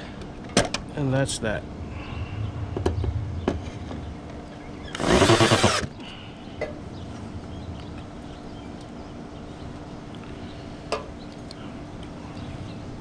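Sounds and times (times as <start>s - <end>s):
cordless drill driving a screw: 5.0s - 5.9s.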